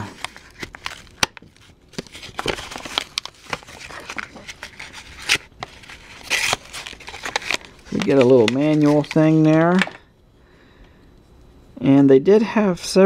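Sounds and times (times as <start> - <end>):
cardboard and plastic crackling: 0.0 - 10.0.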